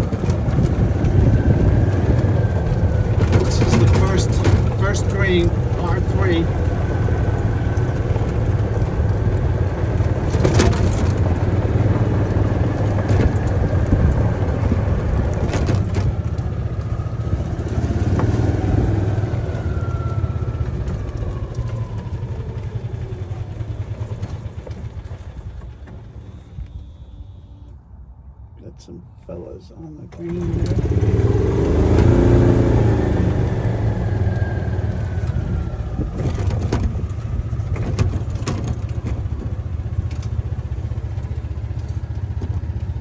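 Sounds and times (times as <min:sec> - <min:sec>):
golf cart rumbling: 0:00.0 - 0:43.0
rattles and knocks: 0:03.0 - 0:05.7, 0:10.0 - 0:16.5, 0:36.1 - 0:40.4.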